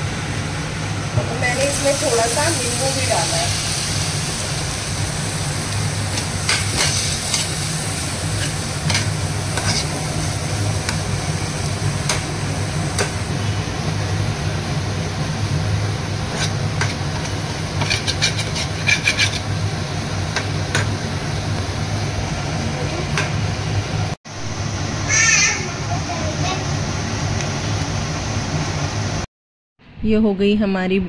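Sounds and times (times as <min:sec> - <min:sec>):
faint sizzle: 0:00.0 - 0:29.2
spoon scraping a frying pan: 0:06.1 - 0:07.6, 0:08.3 - 0:10.2, 0:16.3 - 0:19.5.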